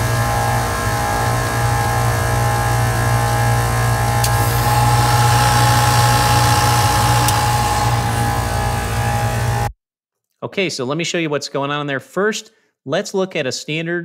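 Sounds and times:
compressor humming and whining: 0.0 - 9.7
sharp clicks: 4.2 - 4.7, 6.3 - 8.2.

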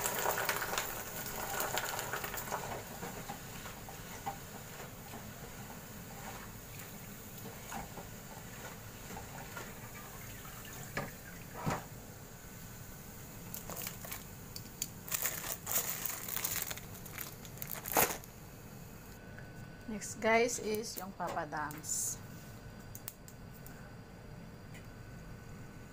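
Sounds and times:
crackers sizzling in hot oil: 0.0 - 18.5.

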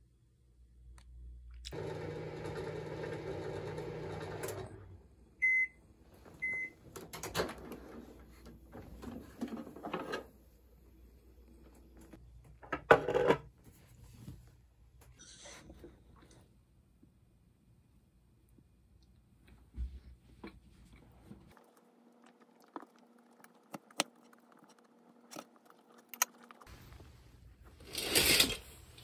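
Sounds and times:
microwave oven humming: 1.6 - 8.8.

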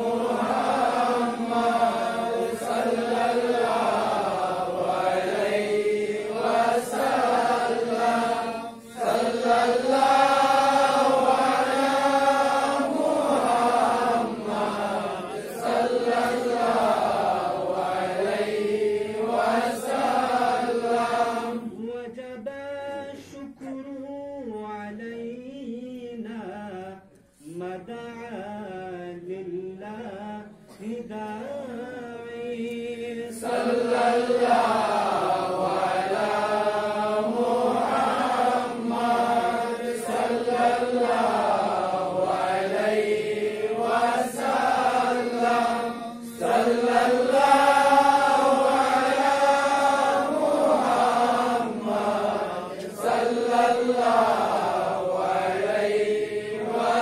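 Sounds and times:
men chanting devotional song: 0.0 - 57.0
man singing into microphone: 21.6 - 33.4.

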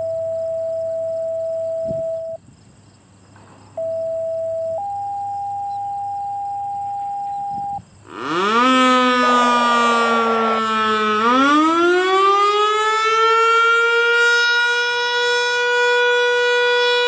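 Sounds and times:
radio activation tones: 0.0 - 2.4, 3.8 - 8.4
electronic siren rising sweep: 7.6 - 17.0.

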